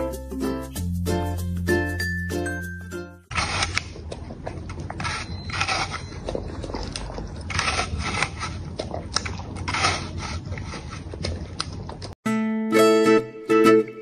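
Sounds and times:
puppy gnawing apple: 3.3 - 12.2.

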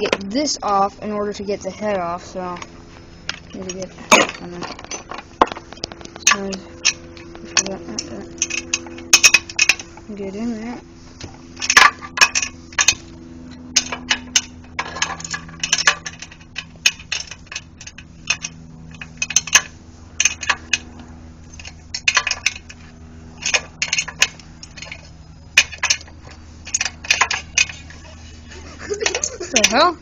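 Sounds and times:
metal clinks: 1.5 - 10.0.

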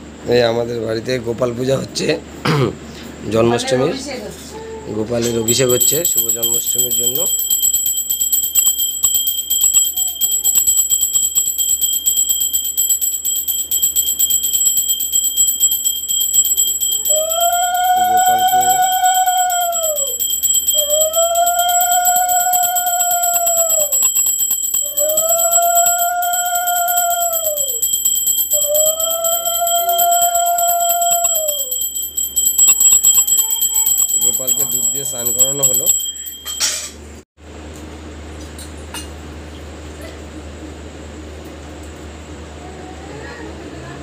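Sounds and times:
brass hand bell ringing rapidly: 5.2 - 36.9.

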